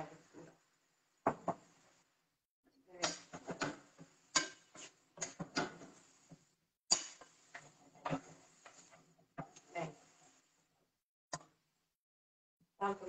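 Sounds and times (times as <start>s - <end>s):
utensil scraping frying pan: 3.1s - 10.5s.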